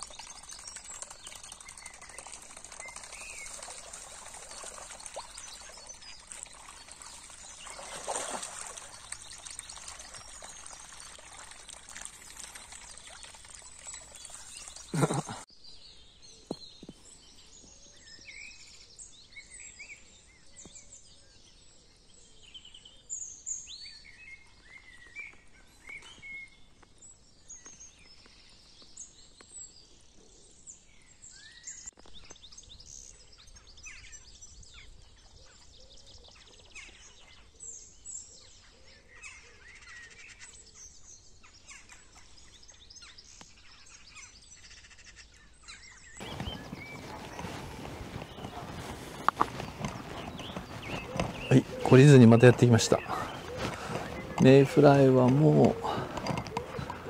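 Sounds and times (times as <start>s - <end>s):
running river water: 0.0s - 15.5s, 46.2s - 57.0s
birds chirping: 0.0s - 21.0s, 45.2s - 57.0s.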